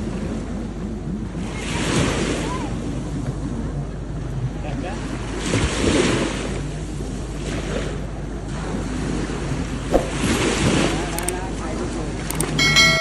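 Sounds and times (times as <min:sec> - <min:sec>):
sea waves washing ashore: 0:05.0 - 0:13.0.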